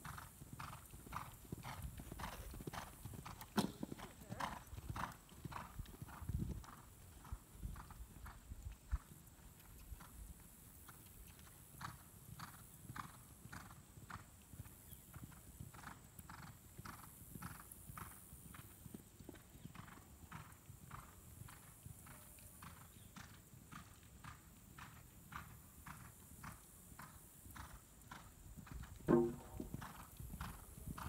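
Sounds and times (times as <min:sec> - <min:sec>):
horse hoofbeats on sand: 0:00.0 - 0:31.0.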